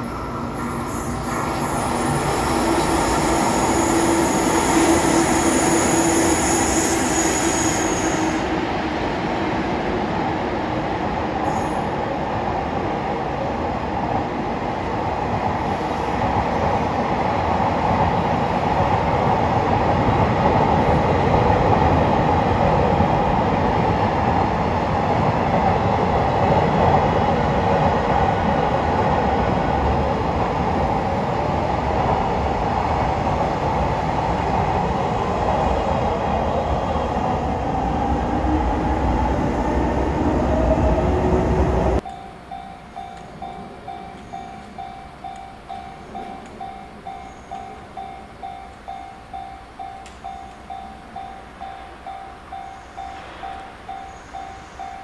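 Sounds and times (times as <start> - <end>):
faint thin squeal: 0.0 - 8.5, 11.4 - 11.9
train wheels rumbling on rails: 0.0 - 55.0.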